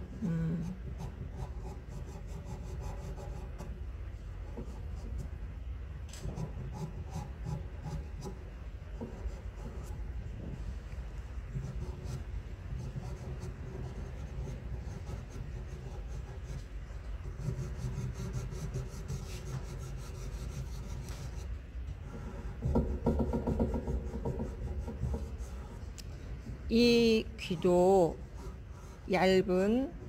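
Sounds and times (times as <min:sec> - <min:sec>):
fingers rubbing pastel on paper: 0:00.6 - 0:03.7, 0:06.3 - 0:10.5, 0:11.4 - 0:25.9
pastel pencil scratching: 0:00.6 - 0:03.7, 0:06.2 - 0:10.0, 0:11.5 - 0:25.9.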